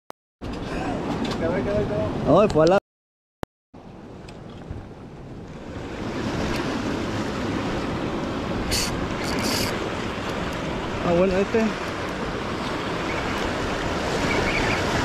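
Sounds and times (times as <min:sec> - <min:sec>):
short hisses: 0:08.7 - 0:09.8.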